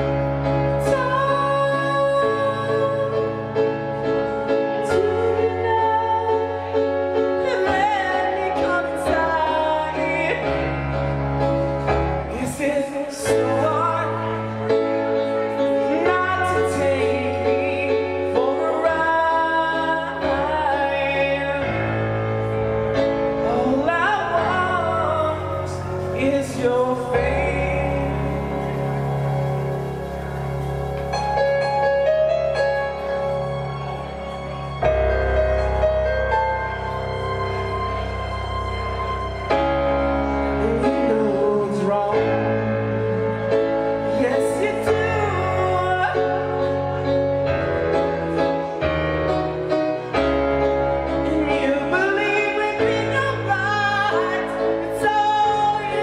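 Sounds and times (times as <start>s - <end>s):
man singing: 0.0s - 29.9s, 40.2s - 47.3s, 51.0s - 56.0s
bass notes: 0.0s - 56.0s
keyboard chords: 0.0s - 56.0s.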